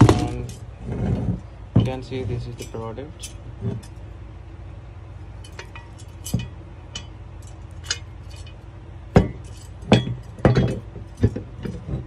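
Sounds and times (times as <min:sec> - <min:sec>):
metal jack stand clinking: 0:00.0 - 0:00.7, 0:01.8 - 0:04.1, 0:05.4 - 0:12.0
small chain rattling: 0:02.5 - 0:04.0, 0:05.4 - 0:08.6, 0:09.2 - 0:11.4.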